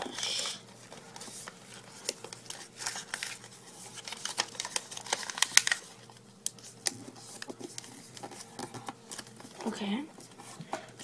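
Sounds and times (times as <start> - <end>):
paper crinkling and crackling: 0.0 - 11.0.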